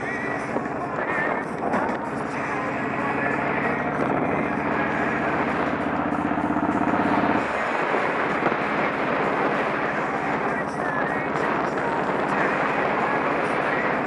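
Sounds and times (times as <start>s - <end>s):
motorcycle engine cruising: 0.0s - 14.0s
wind noise: 0.0s - 14.0s.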